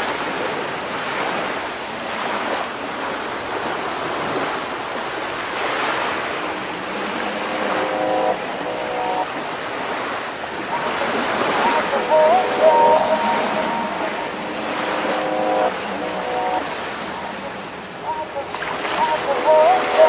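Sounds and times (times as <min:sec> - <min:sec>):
ocean surf washing onto beach: 0:00.0 - 0:20.0.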